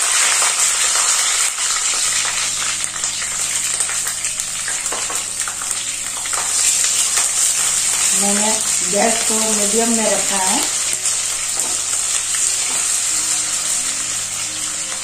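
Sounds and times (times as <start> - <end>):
oil popping: 0.0 - 8.9
chillies sizzling in hot oil: 0.0 - 15.0.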